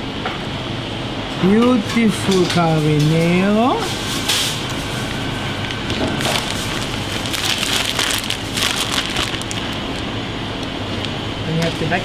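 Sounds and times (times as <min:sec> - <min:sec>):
plastic bag crinkling: 0:05.6 - 0:10.2.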